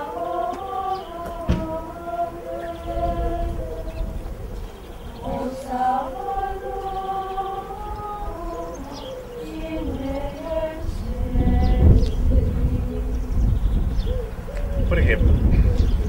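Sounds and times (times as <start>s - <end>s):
voices singing a slow chant: 0.0s - 16.0s
low rumble: 9.9s - 16.0s.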